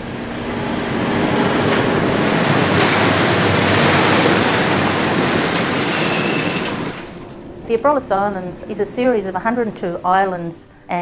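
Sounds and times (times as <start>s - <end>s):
wind and sea rushing: 0.0s - 7.8s.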